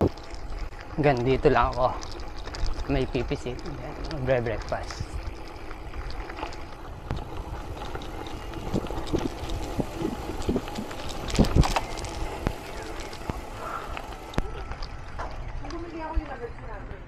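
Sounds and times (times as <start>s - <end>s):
tyres crunching on gravel: 0.0s - 16.8s
bike rattling over bumps: 0.0s - 17.0s
wind on microphone: 6.9s - 11.8s.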